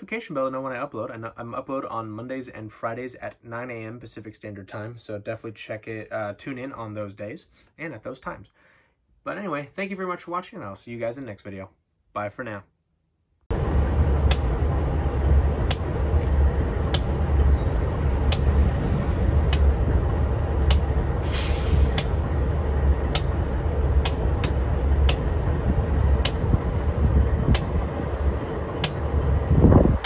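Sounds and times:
diesel locomotive engine rumble: 13.5s - 30.0s
air hiss: 20.6s - 25.5s.

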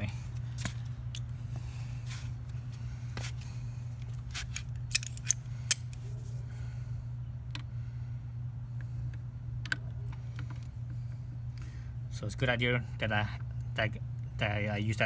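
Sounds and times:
steady low hum: 0.0s - 15.0s
metal tools clinking: 4.5s - 5.8s.

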